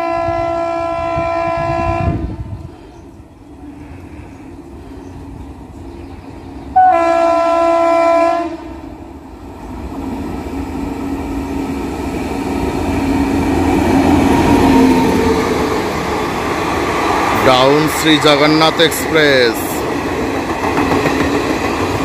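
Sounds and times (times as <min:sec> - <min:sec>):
electric locomotive horn: 0:00.0 - 0:02.4, 0:06.7 - 0:08.9
passenger train passing: 0:00.0 - 0:22.0
train wheel clatter: 0:16.7 - 0:22.0.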